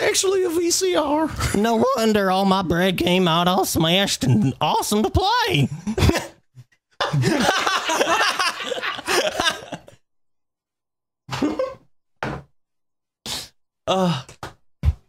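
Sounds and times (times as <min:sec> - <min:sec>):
people laughing: 0:05.7 - 0:10.0.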